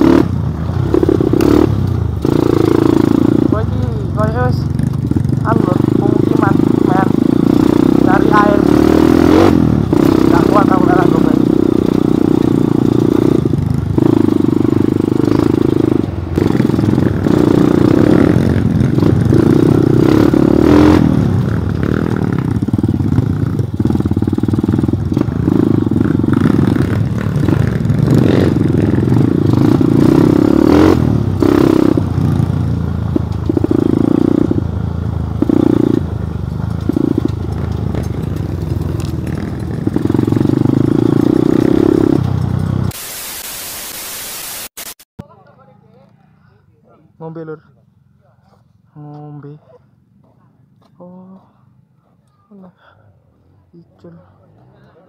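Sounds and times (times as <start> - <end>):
motorcycle engine revving: 0.0 - 45.1
steady hiss: 42.9 - 45.0.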